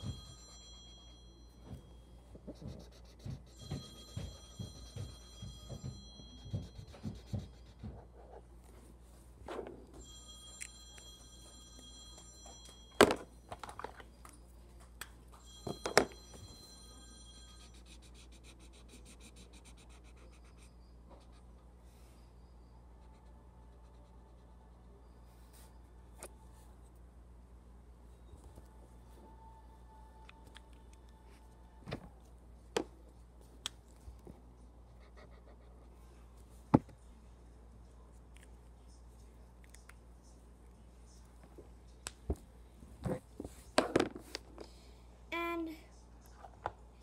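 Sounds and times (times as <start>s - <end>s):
marker scratching on paper: 2.5s - 3.6s, 6.5s - 8.4s, 17.7s - 21.5s.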